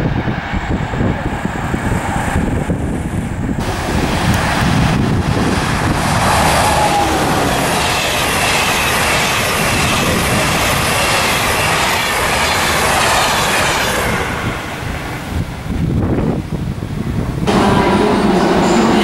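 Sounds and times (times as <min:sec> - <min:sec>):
falling tone of passing locomotive: 0:00.0 - 0:19.0
train wheels rumbling on rails: 0:00.0 - 0:19.0
high wavering wheel squeal: 0:05.8 - 0:13.8.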